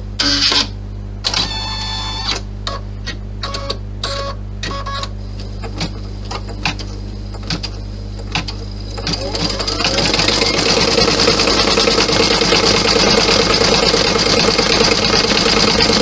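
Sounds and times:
embroidery machine humming: 0.0 - 16.0
embroidery arm whirring clicks: 5.6 - 12.5.

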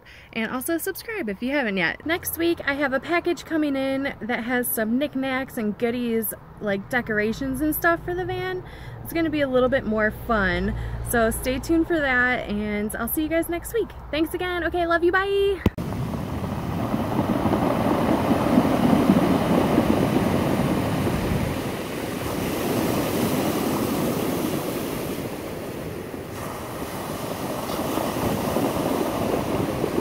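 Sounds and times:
surf washing over stones: 15.8 - 30.0.

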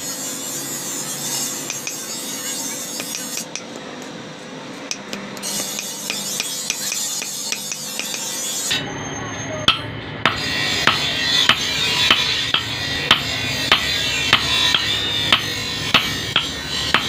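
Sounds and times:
hammer striking hot steel: 1.5 - 3.7, 4.9 - 8.8, 9.6 - 17.0.

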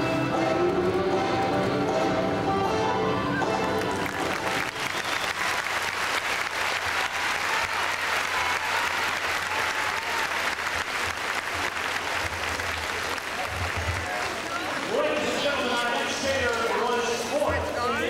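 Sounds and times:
music: 0.0 - 5.9
audience clapping: 3.5 - 17.7.

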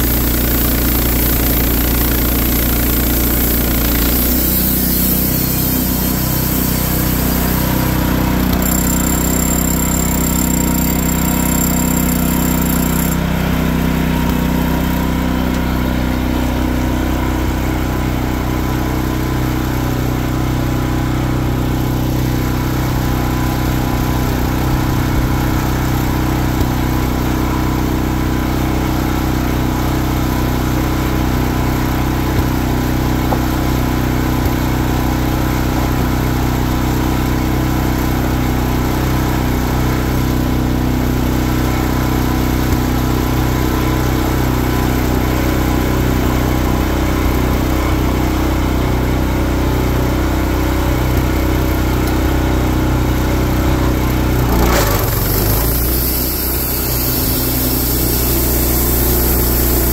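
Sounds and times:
engine idling: 51.1 - 59.9.

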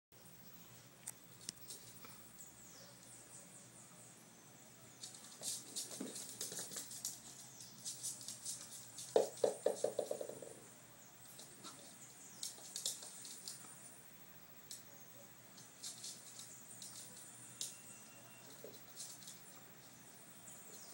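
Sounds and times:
dog claws clicking on hard floor: 5.1 - 7.2, 8.2 - 10.5, 12.4 - 13.6
small ball bouncing: 9.0 - 10.6.

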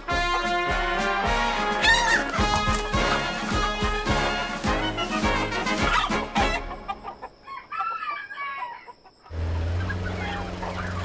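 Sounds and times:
music: 0.0 - 6.9
chickens clucking: 1.8 - 4.0, 4.6 - 11.0
truck engine hum: 9.3 - 11.0.

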